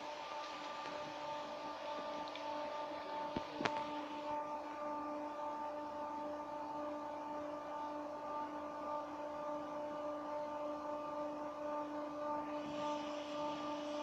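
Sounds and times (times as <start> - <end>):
car wash brushes motor hum: 0.0 - 14.0.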